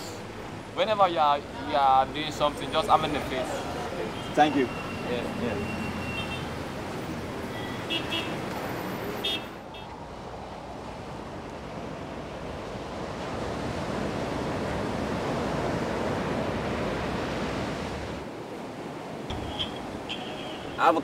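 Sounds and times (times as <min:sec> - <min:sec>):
ocean surf breaking on beach: 0:10.2 - 0:21.0.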